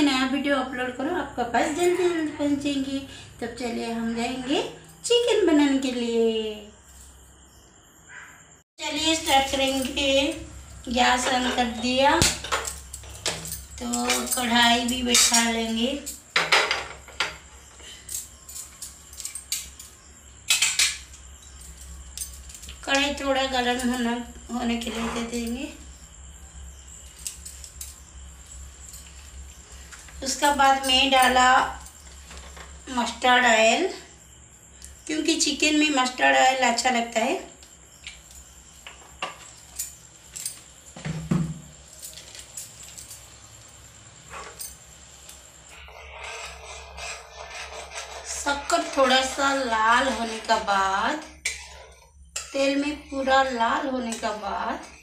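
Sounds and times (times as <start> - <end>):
metal clinks: 9.2 - 24.2, 27.0 - 29.5, 37.9 - 41.0, 41.7 - 45.5
kitchen utensils clinking: 11.0 - 25.8, 30.2 - 32.8, 48.3 - 55.0.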